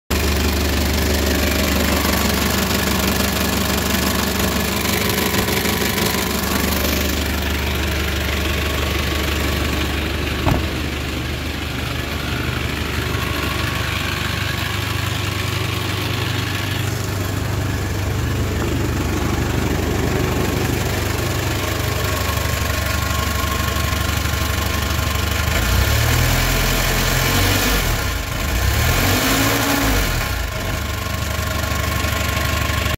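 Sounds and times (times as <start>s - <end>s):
diesel engine idling: 0.1s - 29.1s, 29.8s - 32.9s
engine revving: 25.5s - 30.7s.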